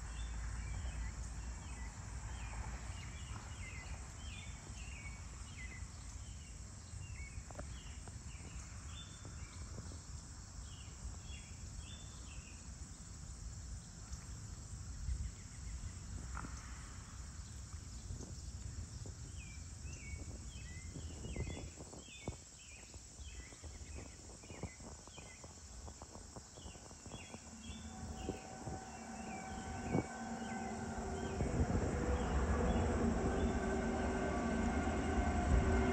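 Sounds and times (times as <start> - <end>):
distant train: 0.0 - 9.8, 23.2 - 35.9
insect chorus: 0.0 - 35.9
wind rumble: 14.8 - 35.9.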